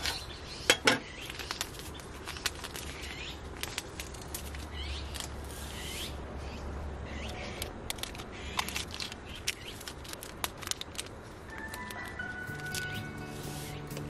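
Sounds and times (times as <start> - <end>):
birds chirping: 0.0 - 3.8, 4.5 - 10.0, 11.5 - 14.0
paper crinkling: 1.2 - 5.8, 7.6 - 14.0.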